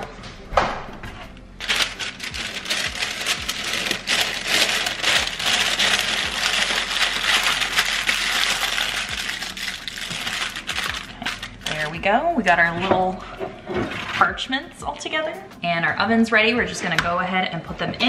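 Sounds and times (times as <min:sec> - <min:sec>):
parchment paper crinkling: 0:01.6 - 0:12.0.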